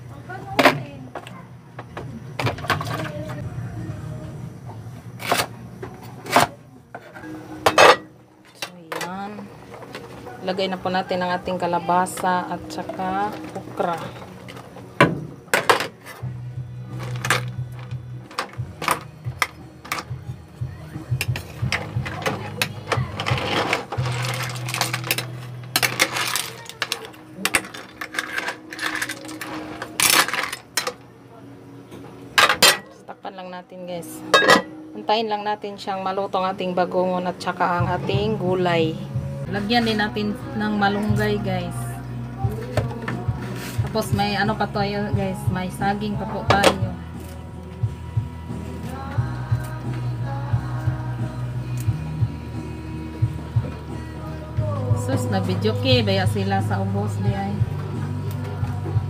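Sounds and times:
steady low hum: 0.0 - 26.4.

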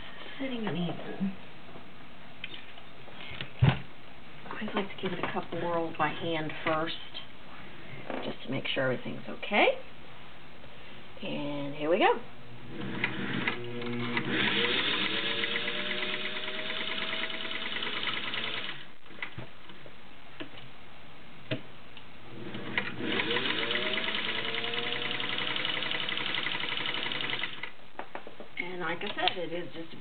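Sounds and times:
sewing machine stitching: 12.8 - 18.9, 22.5 - 27.7.

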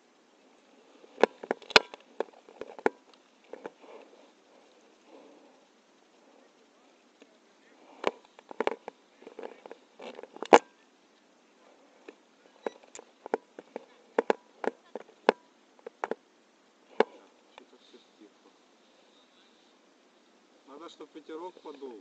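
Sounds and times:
rustling: 0.0 - 22.0
gear handling clicks and knocks: 1.0 - 4.1, 7.9 - 10.7, 12.0 - 16.2.

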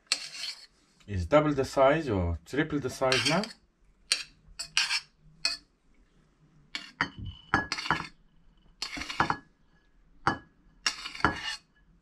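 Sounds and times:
metal spoon scraping saucepan: 0.0 - 0.7, 2.9 - 5.6, 6.7 - 8.2, 8.8 - 9.5, 10.3 - 11.8.

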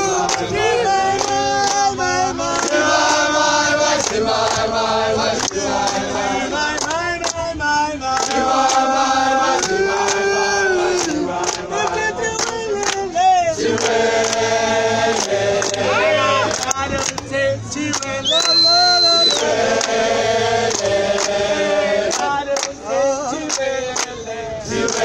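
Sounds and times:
crowd singing in chorus: 0.0 - 25.0
handclaps: 0.2 - 0.5, 1.1 - 1.9, 2.5 - 4.7, 5.3 - 6.1, 6.7 - 7.4, 8.1 - 8.9, 9.5 - 10.2, 10.9 - 14.5, 15.1 - 15.8, 16.5 - 20.0, 20.7 - 21.4, 22.1 - 22.8, 23.4 - 25.0.

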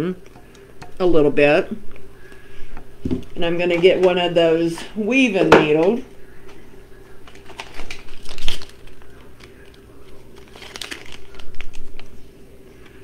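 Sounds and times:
materials crinkling: 5.8 - 13.0.

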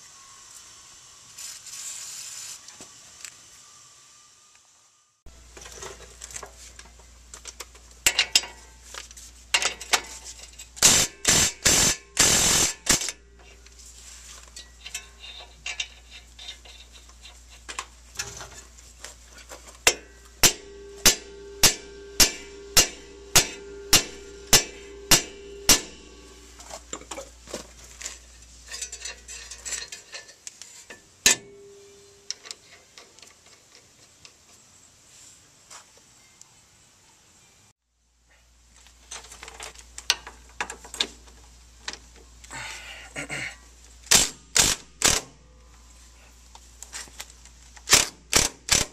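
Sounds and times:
low steady hum: 3.6 - 33.6
sharp metallic knocks and clicks: 19.8 - 26.3, 44.1 - 45.4, 47.9 - 48.9
evenly spaced metal strikes: 19.9 - 26.4.

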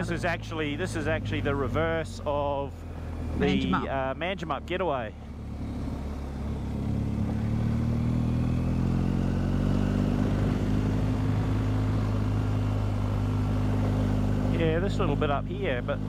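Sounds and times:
motorcycle engine accelerating: 5.4 - 16.0.

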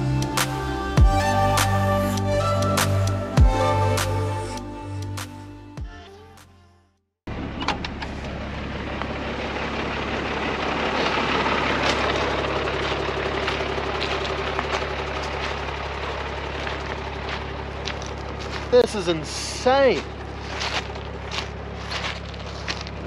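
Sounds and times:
diesel truck engine: 0.0 - 5.8, 7.3 - 23.0
tyres rumbling on gravel: 7.3 - 23.0.

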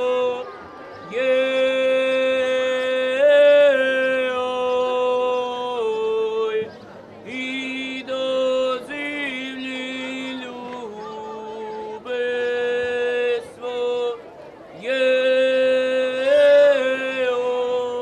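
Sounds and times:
ensemble singing a cappella: 0.0 - 18.0.

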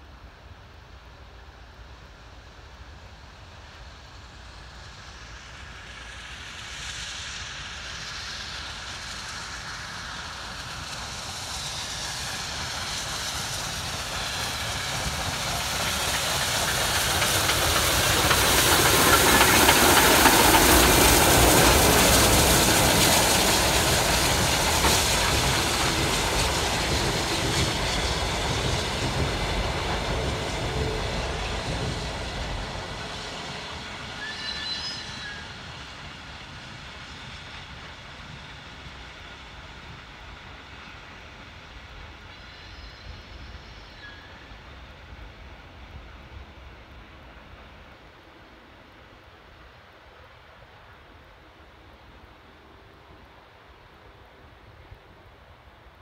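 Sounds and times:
steam hiss: 1.0 - 49.4
train wheels rolling: 4.9 - 46.6.

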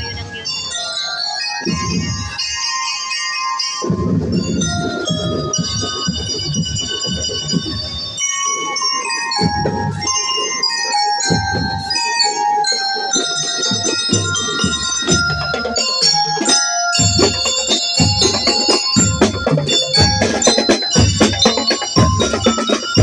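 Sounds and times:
glockenspiels ringing a melody: 0.0 - 23.0
bass drums and snares: 17.0 - 23.0.

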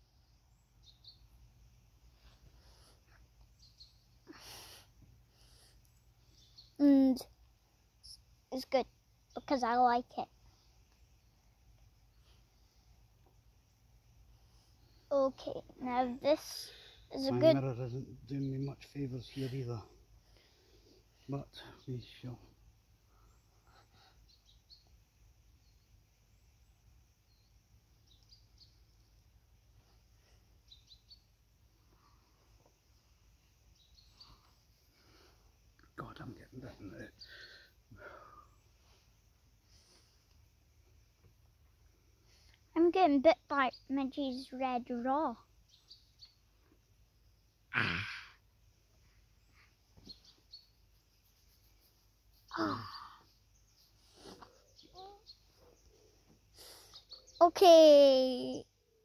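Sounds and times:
faint bird chirps: 0.0 - 59.0
person breathy vocal sound: 47.7 - 48.4, 52.5 - 53.3.

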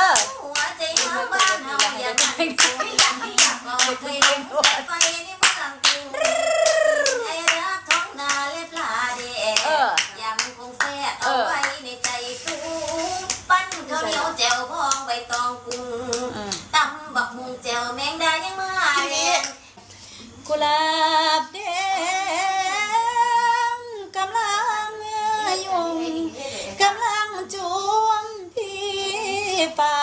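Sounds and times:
hand-clapping: 0.0 - 8.9.

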